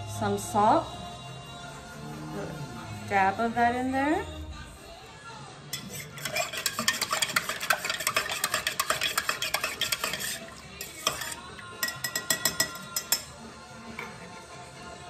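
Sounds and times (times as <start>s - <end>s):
metal spoon clinking in cup: 5.7s - 13.4s.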